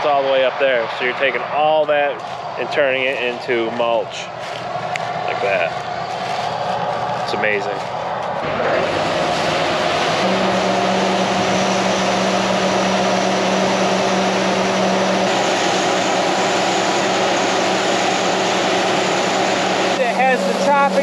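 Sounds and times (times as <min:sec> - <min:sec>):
combine harvester and tractor running: 0:00.0 - 0:21.0
steady hum: 0:01.2 - 0:21.0
corn pouring from auger: 0:08.6 - 0:21.0.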